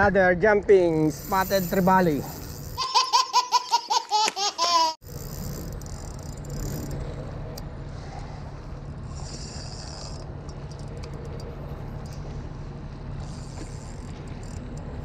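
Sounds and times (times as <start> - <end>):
fishing reel clicks: 1.1 - 2.8, 5.0 - 7.0, 13.2 - 14.9
baby laughing: 2.8 - 5.0
low hum and hiss by the sea: 5.0 - 15.0.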